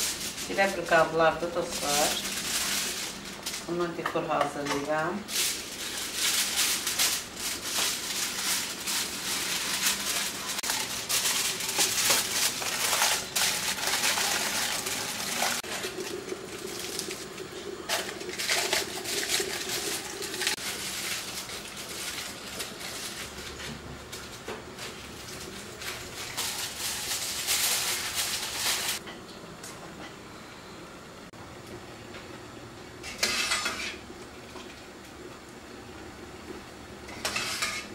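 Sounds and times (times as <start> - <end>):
foil crinkling: 0.0 - 4.0, 4.7 - 29.0
scissors cutting foil: 4.7 - 15.6, 25.8 - 29.0.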